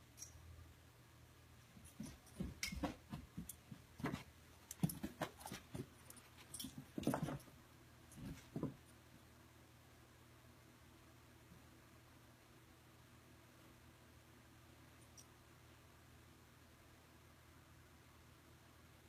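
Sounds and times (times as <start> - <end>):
puppy paws thumping on carpet: 1.8 - 8.9.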